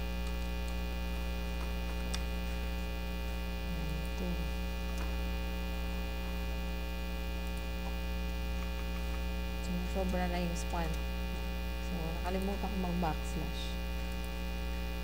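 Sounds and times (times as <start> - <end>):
buzzing mains hum: 0.0 - 15.0.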